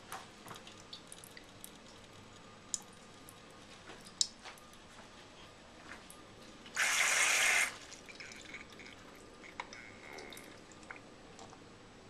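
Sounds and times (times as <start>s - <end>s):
faint drips and ticks: 0.0s - 6.8s, 8.0s - 11.6s
hissing running water: 6.7s - 9.6s.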